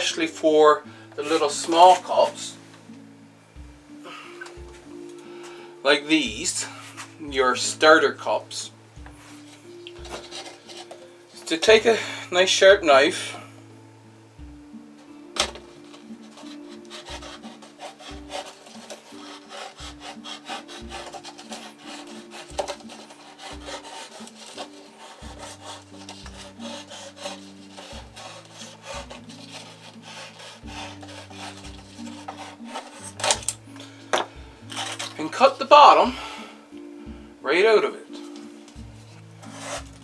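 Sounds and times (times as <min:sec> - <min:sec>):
soft background music: 0:00.0 - 0:40.0
knife sawing through plastic cup: 0:10.0 - 0:11.0, 0:15.9 - 0:33.5, 0:34.6 - 0:35.6, 0:39.1 - 0:40.0.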